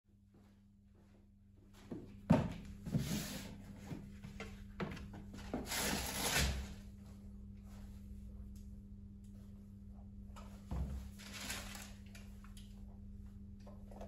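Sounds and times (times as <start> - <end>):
steady low hum: 0.1 - 14.0
wrapping paper rustling: 11.2 - 12.2.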